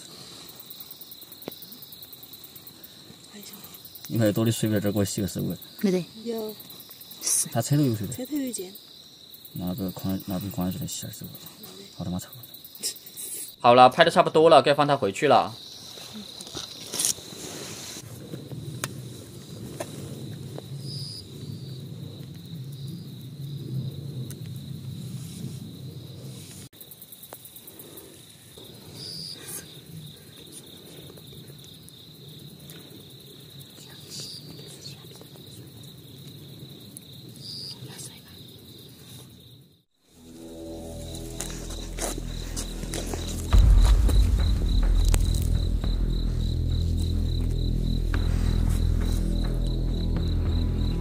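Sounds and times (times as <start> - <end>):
crickets trilling: 0.0 - 51.0
insect chirps: 0.0 - 51.0
low rustling: 40.0 - 51.0.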